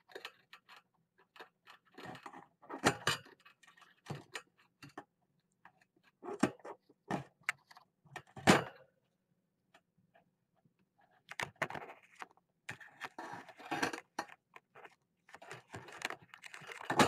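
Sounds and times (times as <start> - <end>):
plastic zip ties clicking and rattling: 13.9 - 17.0.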